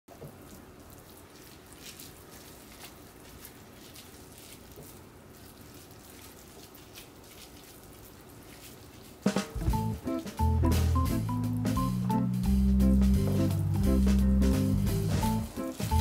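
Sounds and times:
wet squishing of hands: 0:00.1 - 0:10.2.

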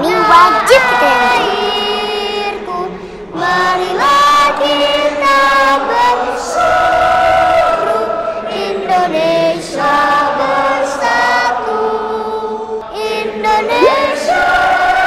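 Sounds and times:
girl singing close: 0:00.0 - 0:01.6, 0:13.7 - 0:14.2
voices singing held notes: 0:03.5 - 0:15.0.

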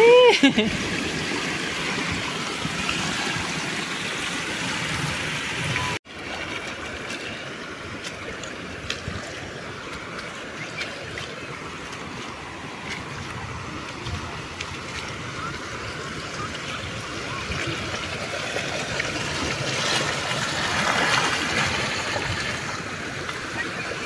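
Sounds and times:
floodwater rushing and pouring: 0:00.0 - 0:24.0.

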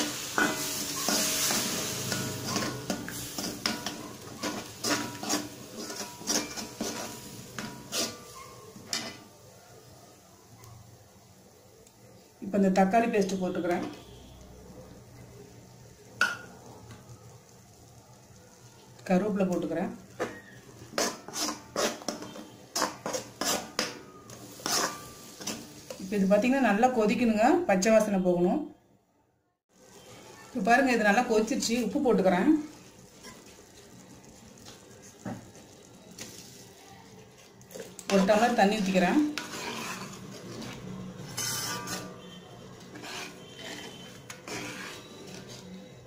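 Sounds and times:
light sizzle: 0:00.0 - 0:28.2, 0:29.7 - 0:46.0
paste scraped around metal pan: 0:00.2 - 0:08.3, 0:20.9 - 0:23.8, 0:24.5 - 0:25.6, 0:39.2 - 0:45.8.

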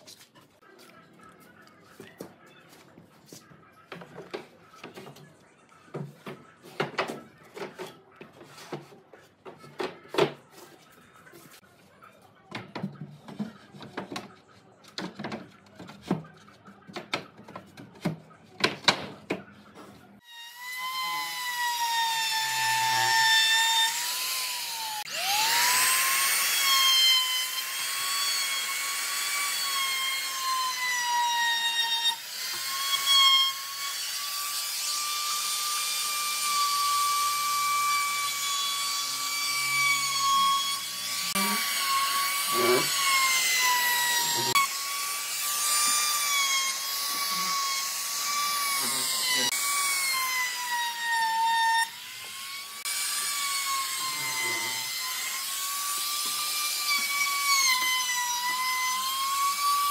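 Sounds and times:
trim router whining: 0:20.2 - 0:59.9.

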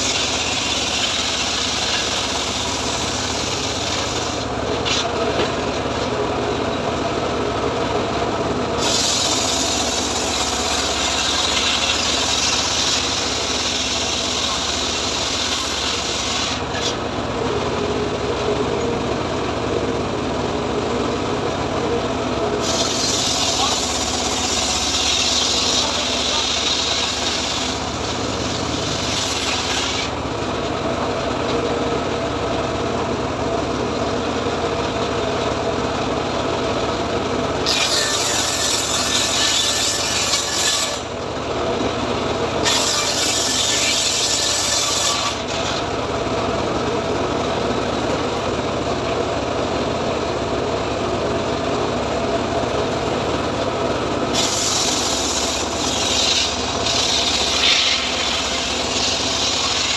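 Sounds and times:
saw blade cutting wood: 0:00.0 - 0:06.1, 0:08.8 - 0:17.0, 0:22.6 - 0:30.2, 0:37.6 - 0:41.2, 0:42.6 - 0:45.9, 0:54.3 - 0:59.9
saw bench running: 0:00.0 - 0:59.9.

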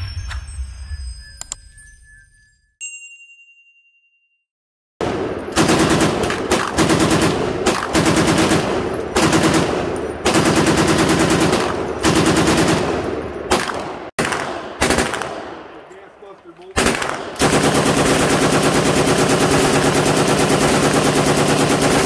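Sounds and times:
machine gun automatic fire: 0:05.0 - 0:15.7, 0:16.7 - 0:22.0.

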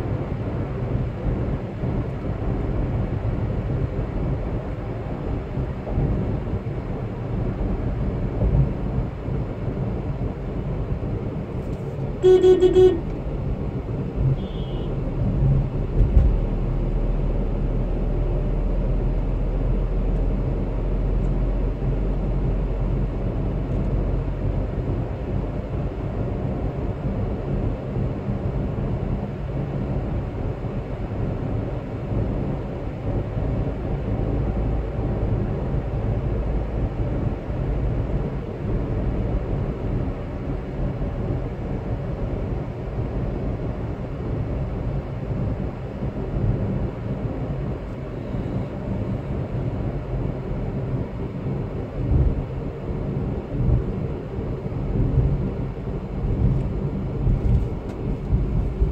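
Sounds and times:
car engine and tyre rumble: 0:00.0 - 0:58.9
vehicle horn toot: 0:12.2 - 0:13.1, 0:14.4 - 0:15.0.

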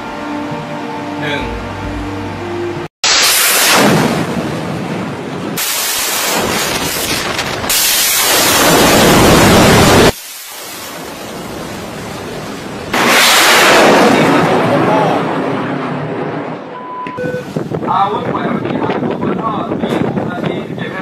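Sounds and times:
rocket booster roaring: 0:03.0 - 0:10.2, 0:12.9 - 0:16.6.

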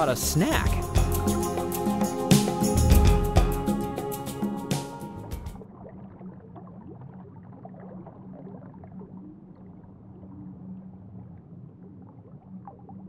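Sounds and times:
water bubbling and gurgling: 0:05.5 - 0:13.0
steady low underwater hum: 0:05.6 - 0:13.0.

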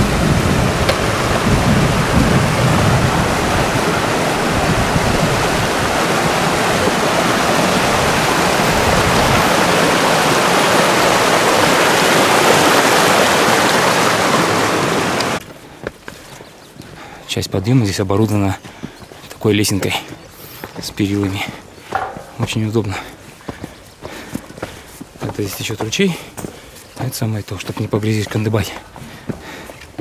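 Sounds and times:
stream running loudly: 0:00.0 - 0:15.5.

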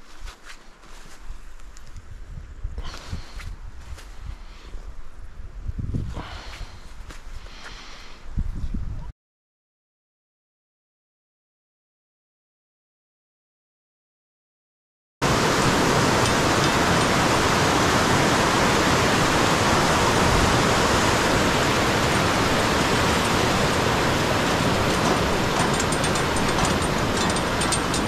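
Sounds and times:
river rapids rushing: 0:15.2 - 0:28.0.

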